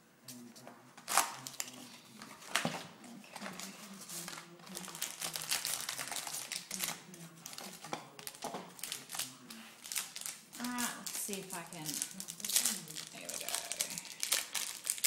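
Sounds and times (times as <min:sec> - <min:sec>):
foil and plastic crinkling: 0:01.0 - 0:15.0.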